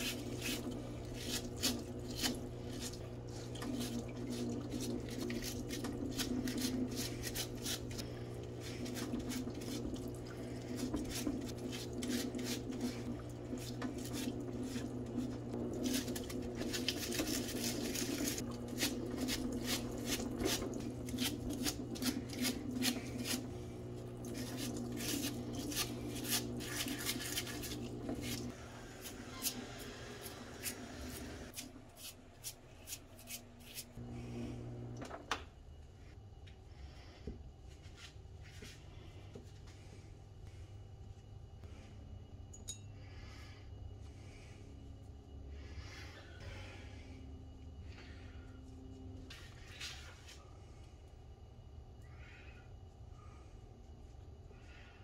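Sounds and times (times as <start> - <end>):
stiff brush scrubbing metal parts: 0.0 - 23.6, 24.2 - 34.0
pump humming: 0.0 - 31.5, 34.0 - 35.2.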